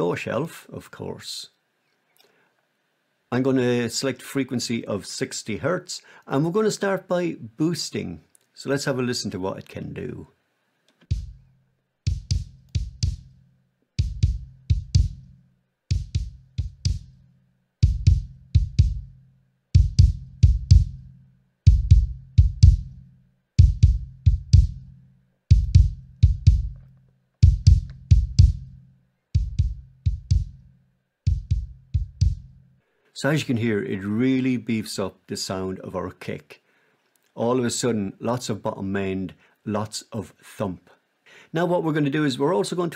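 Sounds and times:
kick drum hits: 0:11.1 - 0:11.5, 0:12.1 - 0:13.3, 0:14.0 - 0:15.3, 0:15.9 - 0:17.2, 0:17.8 - 0:19.1, 0:19.8 - 0:21.1, 0:21.7 - 0:23.0, 0:23.6 - 0:24.9, 0:25.5 - 0:28.8, 0:29.4 - 0:30.6, 0:31.3 - 0:32.6.

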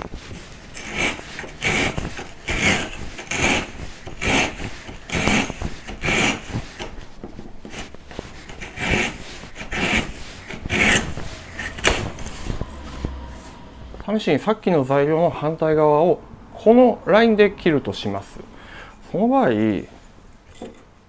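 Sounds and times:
handsaw cutting wood: 0:00.3 - 0:13.6.

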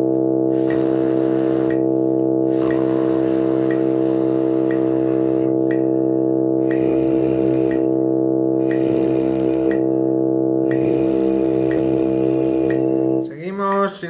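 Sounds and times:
mouthpieces buzzing: 0:00.0 - 0:14.0
sustained accompaniment chord: 0:00.0 - 0:14.0
metronome clicking: 0:00.6 - 0:01.9, 0:02.6 - 0:05.9, 0:08.6 - 0:09.8, 0:10.7 - 0:11.9, 0:12.6 - 0:12.9, 0:13.6 - 0:14.0.

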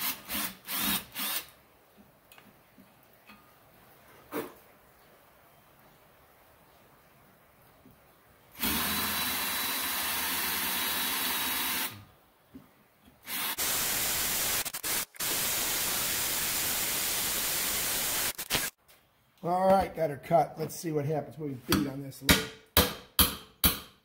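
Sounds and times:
power drill boring through metal: 0:00.0 - 0:01.5, 0:08.6 - 0:12.0, 0:13.3 - 0:18.4.

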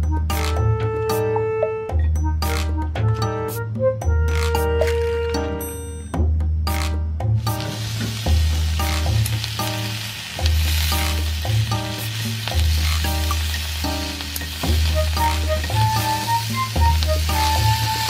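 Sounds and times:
background music with bassline: 0:00.0 - 0:18.0
sausages sizzling in a skillet: 0:07.4 - 0:18.0.

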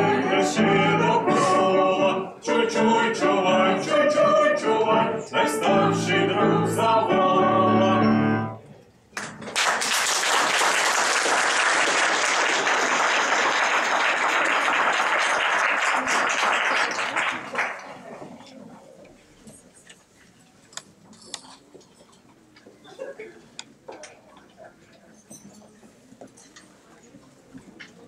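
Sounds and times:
audience applauding: 0:09.2 - 0:18.0.

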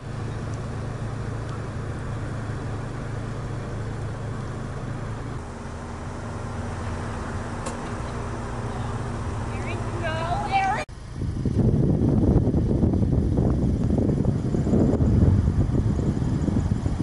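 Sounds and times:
constant low hum: 0:00.0 - 0:17.0
traffic rumble: 0:00.0 - 0:17.0.

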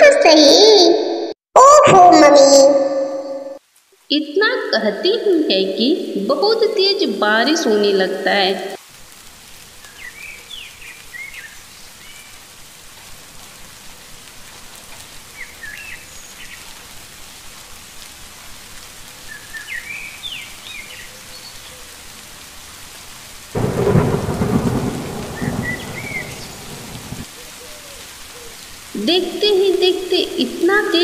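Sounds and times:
heavy rain: 0:03.6 - 0:31.0
thunderclap rumbling: 0:23.6 - 0:27.3.

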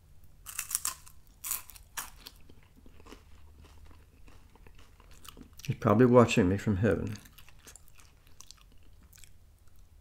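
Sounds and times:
crunching wafer: 0:00.4 - 0:05.8
chewing: 0:00.5 - 0:05.8, 0:06.9 - 0:09.9.

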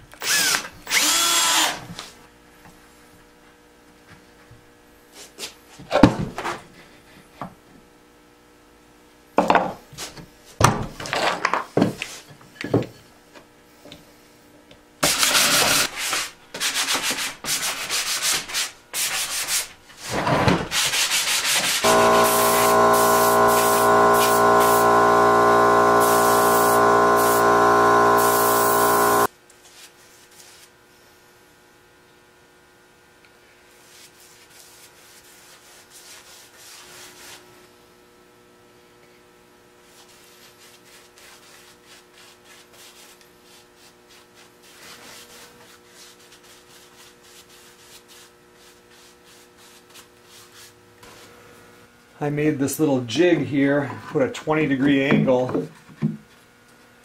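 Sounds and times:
motor running: 0:00.2 - 0:01.8, 0:21.8 - 0:29.3
hand sanding wood: 0:15.0 - 0:19.7, 0:20.7 - 0:30.7, 0:33.8 - 0:37.4, 0:39.9 - 0:50.8.

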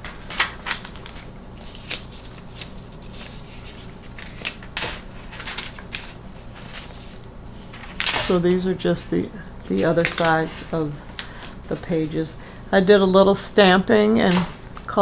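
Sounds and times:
paper pages turning: 0:00.0 - 0:08.6, 0:09.6 - 0:11.9.

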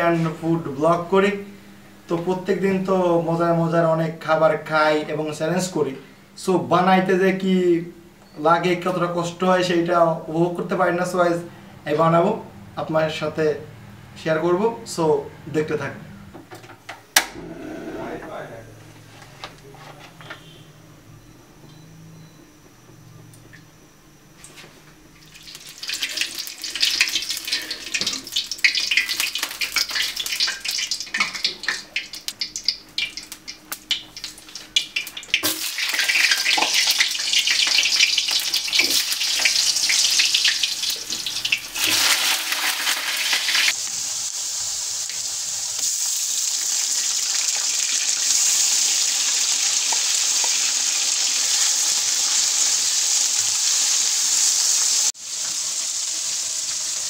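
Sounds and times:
hot oil sizzling: 0:25.2 - 0:57.0.

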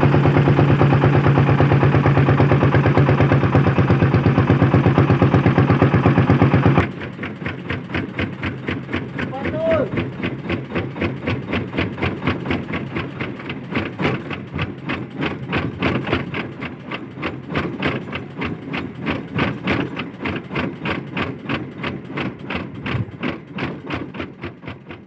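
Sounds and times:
small boat engine running: 0:00.0 - 0:25.0.

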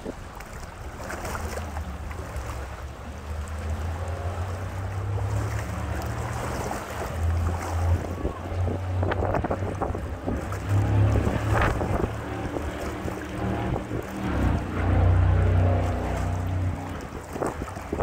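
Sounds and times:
boat engine idling: 0:00.0 - 0:18.0
gusty wind on microphone: 0:06.1 - 0:18.0.

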